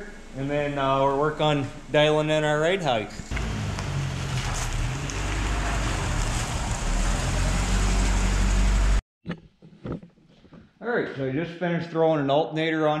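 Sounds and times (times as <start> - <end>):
rushing noise: 3.3 - 9.0
truck engine humming: 3.3 - 9.0.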